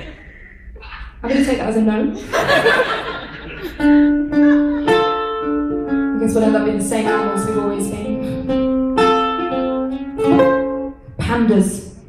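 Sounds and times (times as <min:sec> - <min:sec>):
ukulele: 0:03.6 - 0:11.3.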